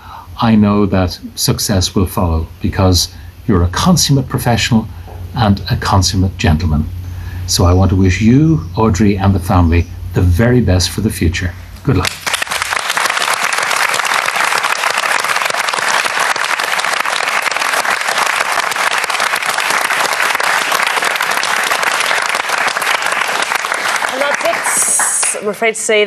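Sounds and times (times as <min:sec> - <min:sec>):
audience applauding: 0:12.0 - 0:25.5.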